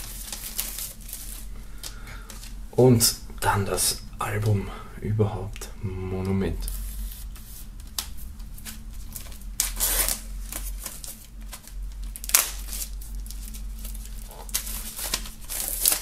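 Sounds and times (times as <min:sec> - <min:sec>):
plastic film crinkling and tearing: 0:00.0 - 0:02.6, 0:06.6 - 0:16.0.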